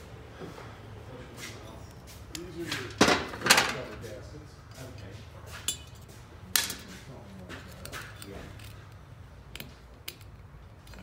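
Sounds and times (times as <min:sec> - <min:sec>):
screwdriver clicking and scraping metal: 0:07.6 - 0:11.0.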